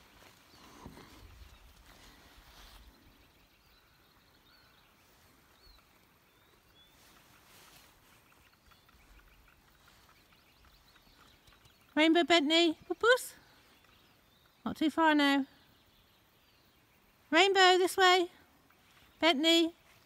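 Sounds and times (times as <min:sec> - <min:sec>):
faint bird chirps: 0:00.1 - 0:12.0.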